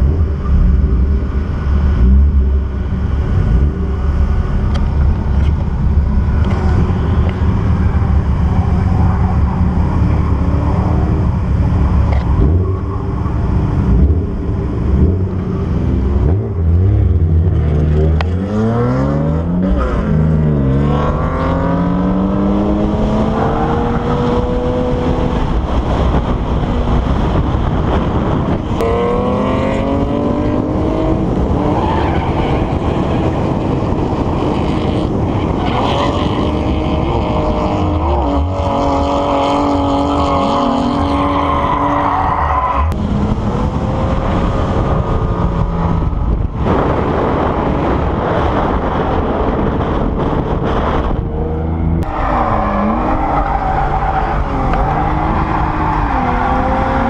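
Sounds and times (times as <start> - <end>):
car engine revving hard: 13.7 - 57.0.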